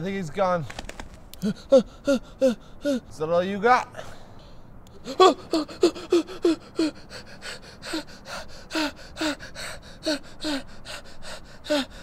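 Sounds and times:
breathy panting: 0:01.4 - 0:03.1, 0:04.0 - 0:12.0
man crying in pain: 0:01.4 - 0:03.2, 0:04.9 - 0:12.0.

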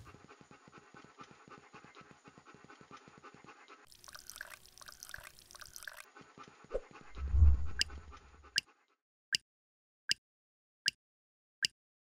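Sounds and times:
dog panting: 0:00.0 - 0:03.9, 0:05.9 - 0:08.9
liquid trickling: 0:03.9 - 0:06.1.

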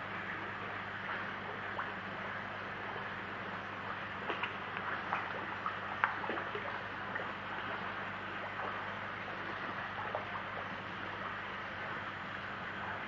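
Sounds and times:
low steady hum: 0:00.0 - 0:13.0
fish splashing at water surface: 0:04.2 - 0:10.7.

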